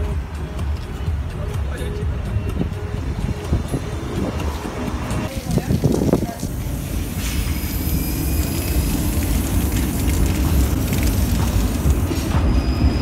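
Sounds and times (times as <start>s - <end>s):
tram wheels rumbling on rails: 6.5s - 13.0s.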